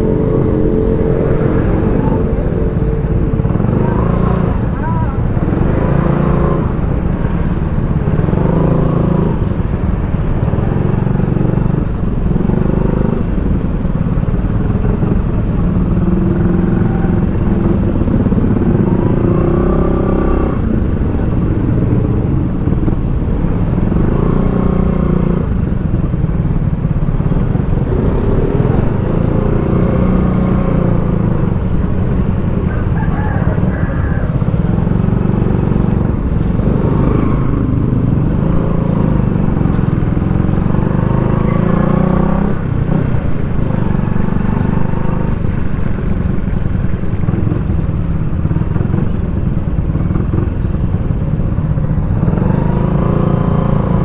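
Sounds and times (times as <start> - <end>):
steady low rumble: 0.0 - 41.3
motorcycle engine revving: 0.0 - 54.0.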